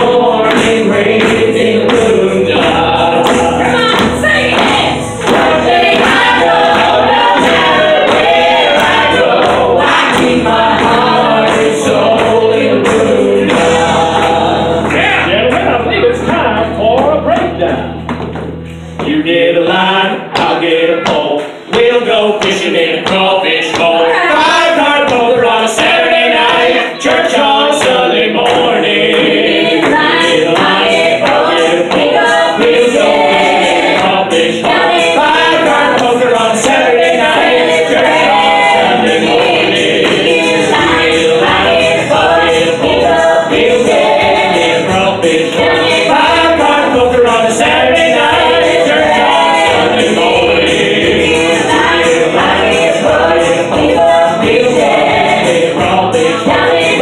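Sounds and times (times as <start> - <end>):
group singing in harmony: 0.0 - 16.9, 18.8 - 57.0
rhythmic beat: 0.0 - 57.0.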